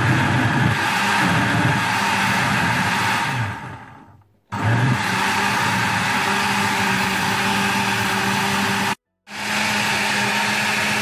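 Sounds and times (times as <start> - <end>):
blender motor running: 0.0 - 11.0.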